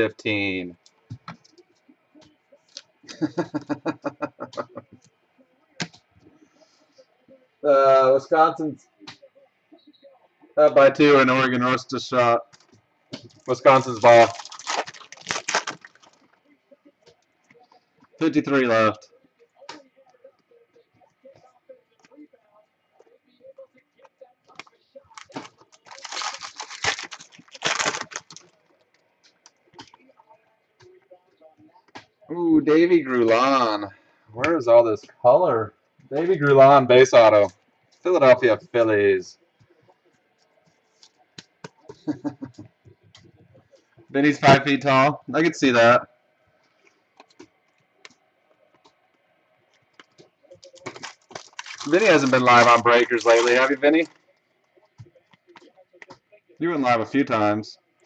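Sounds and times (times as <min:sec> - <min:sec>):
person chuckling: 0:03.0 - 0:05.0, 0:41.9 - 0:42.8
foil card pack crinkling: 0:13.4 - 0:16.2, 0:25.1 - 0:28.5, 0:50.6 - 0:54.2.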